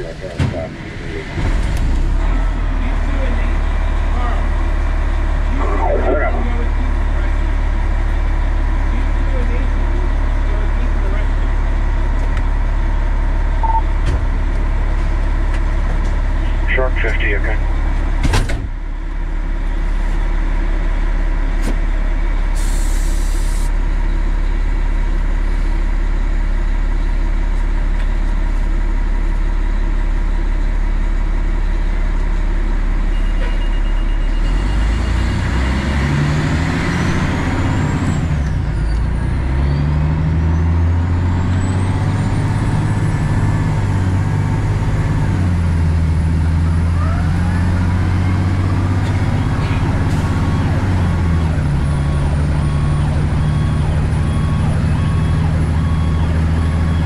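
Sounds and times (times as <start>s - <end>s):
fire truck diesel engine: 0.0s - 57.0s
siren wailing: 5.1s - 7.9s, 46.6s - 48.4s.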